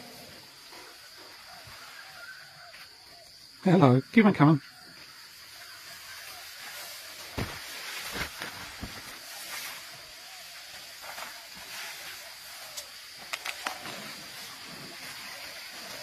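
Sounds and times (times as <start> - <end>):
steady high hiss: 0.0 - 16.0
leaves rustling: 5.0 - 16.0.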